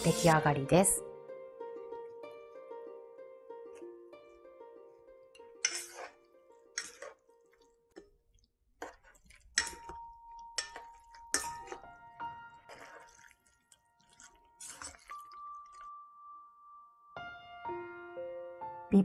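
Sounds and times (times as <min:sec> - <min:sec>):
chopsticks slapping noodles in bowl: 0:06.8 - 0:10.0, 0:10.6 - 0:11.9, 0:12.7 - 0:15.8.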